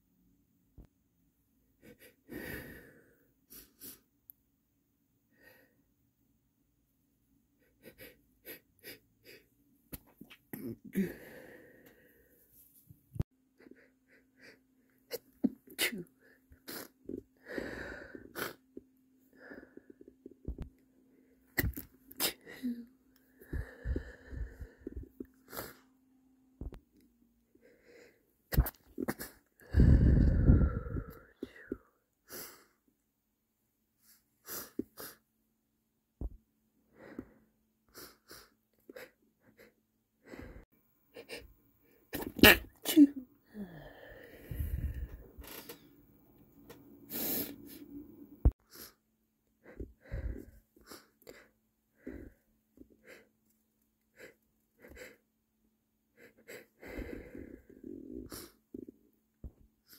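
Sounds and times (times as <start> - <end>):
man's stifled sneezes: 42.2 - 43.2.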